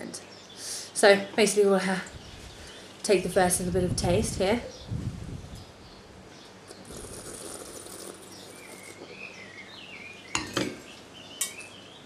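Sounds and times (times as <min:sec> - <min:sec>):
bird chirping: 0:04.6 - 0:12.0
wine slurping: 0:06.7 - 0:09.2
glass clinking on table: 0:10.4 - 0:10.8.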